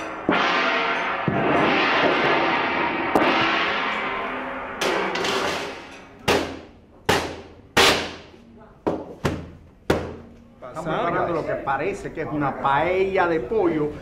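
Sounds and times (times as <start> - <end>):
metal tray struck ringing: 0.0 - 6.8.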